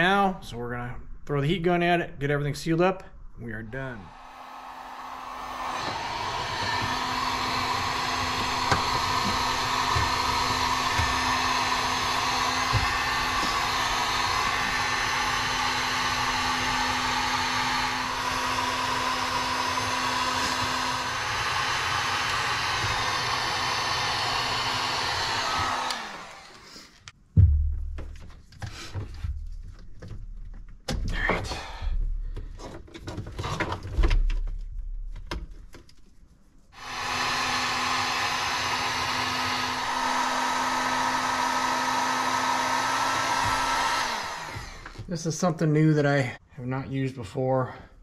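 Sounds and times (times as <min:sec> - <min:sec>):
heat gun blowing: 0:04.0 - 0:27.1, 0:36.7 - 0:45.3
knocks: 0:27.4 - 0:32.6.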